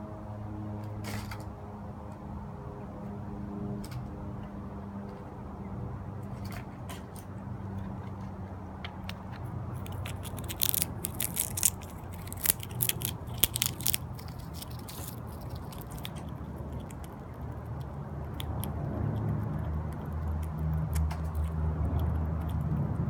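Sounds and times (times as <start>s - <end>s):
squirrel crunching a peanut: 6.2s - 23.0s.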